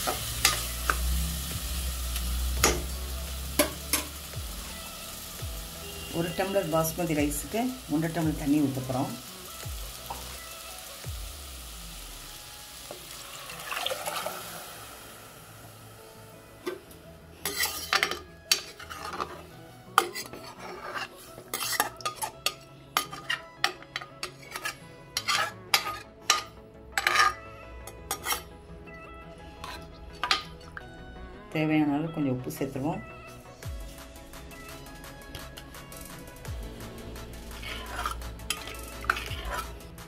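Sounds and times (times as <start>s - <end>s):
pressure cooker hissing: 0.0s - 16.8s
metal spoon scraping pot: 17.4s - 28.5s, 29.5s - 30.8s, 37.2s - 39.9s.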